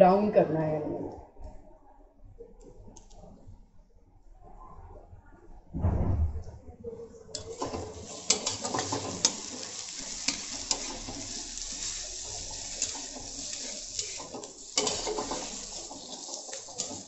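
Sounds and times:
metal spatula scraping pan: 7.4s - 17.0s
onions sizzling in oil: 7.4s - 17.0s.

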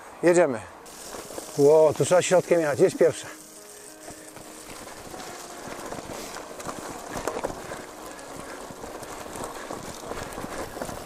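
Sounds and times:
bike rattling: 0.8s - 11.0s
tyres crunching on stones: 0.8s - 11.0s.

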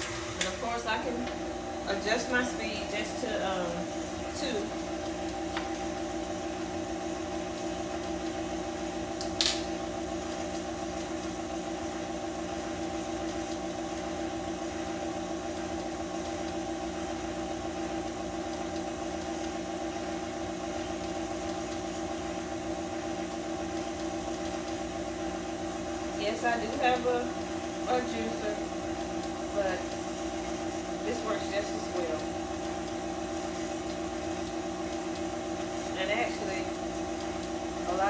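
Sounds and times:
stand mixer motor humming: 0.0s - 38.0s.

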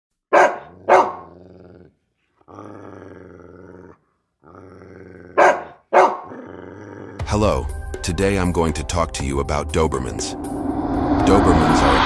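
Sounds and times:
dog barking: 0.3s - 1.3s, 5.4s - 6.4s
dog growling: 0.6s - 7.2s.

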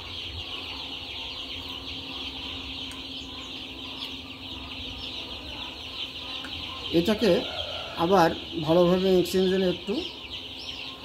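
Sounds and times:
chicks peeping: 0.0s - 11.0s
steady low hum: 0.0s - 11.0s.

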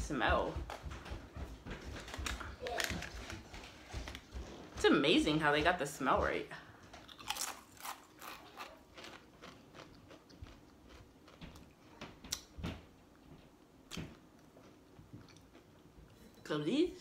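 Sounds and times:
person chewing crisps: 6.9s - 12.5s, 14.2s - 15.9s.

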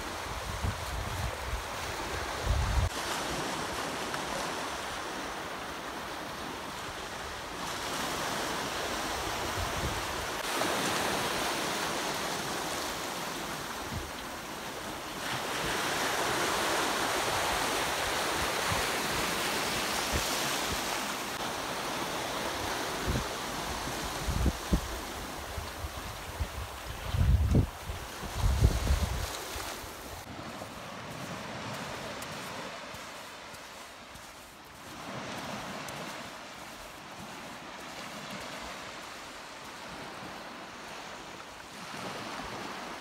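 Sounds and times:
wind rumbling on microphone: 0.0s - 3.0s, 22.6s - 32.7s
waves washing over sand: 0.0s - 43.0s.

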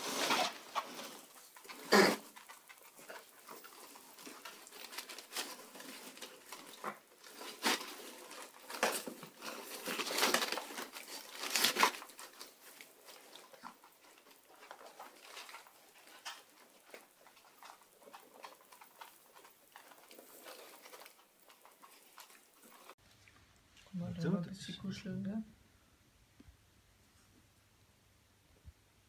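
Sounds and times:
paper rustling: 0.0s - 23.0s
paws pattering: 0.7s - 23.0s.

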